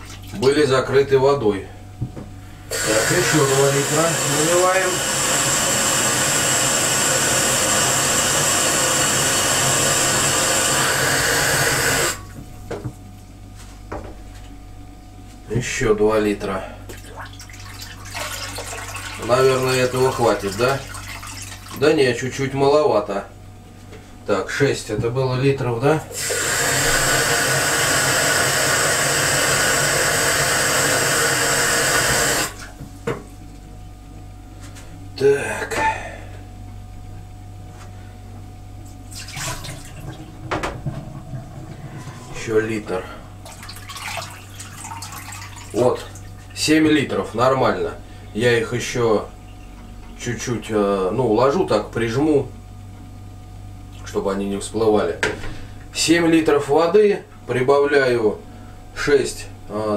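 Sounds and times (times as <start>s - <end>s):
tap water running into jug: 2.7s - 12.2s, 17.3s - 21.8s, 26.1s - 32.7s, 39.2s - 40.2s, 43.5s - 45.8s.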